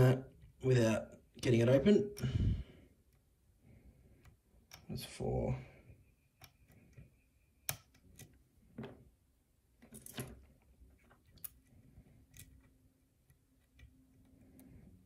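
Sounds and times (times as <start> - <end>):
lock pick clicking: 7.6 - 8.4.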